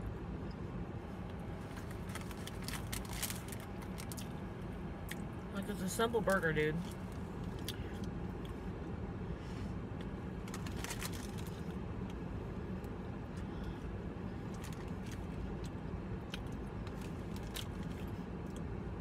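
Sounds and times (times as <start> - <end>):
low hum inside a car: 0.0 - 19.0
small clicks and crinkles: 1.2 - 4.4, 10.4 - 12.2, 14.5 - 18.6.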